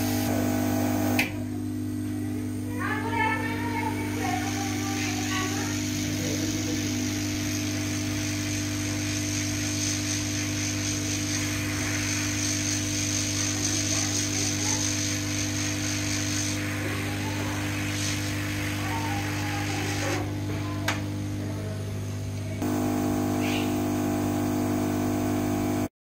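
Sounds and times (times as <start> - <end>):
small electric motor hum: 0.0 - 1.3, 2.4 - 21.4, 22.5 - 25.9.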